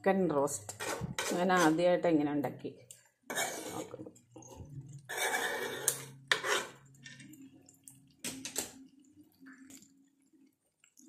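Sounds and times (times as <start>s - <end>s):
metal spoon scraping a pan: 0.5s - 1.9s, 3.3s - 7.4s.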